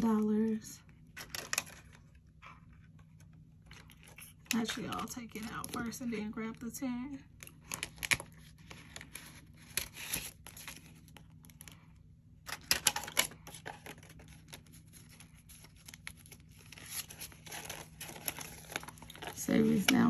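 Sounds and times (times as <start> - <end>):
banknotes rustling: 12.5 - 20.0
plastic pouch crinkling: 12.5 - 20.0.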